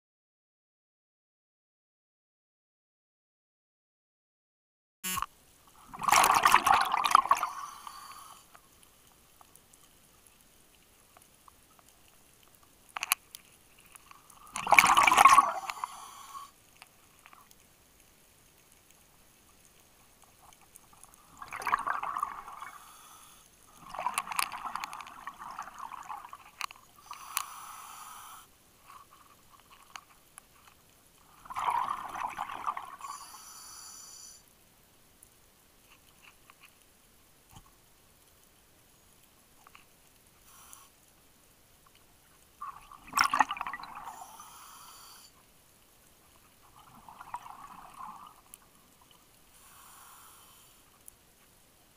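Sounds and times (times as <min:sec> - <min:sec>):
exhaled breath bubbling underwater: 0:05.8 - 0:08.4, 0:14.4 - 0:16.6.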